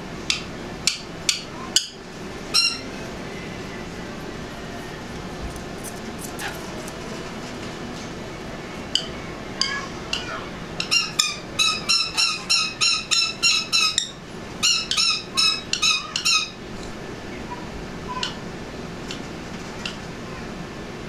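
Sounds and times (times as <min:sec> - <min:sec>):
parrot screeching: 0:02.5 - 0:03.0, 0:09.6 - 0:16.6.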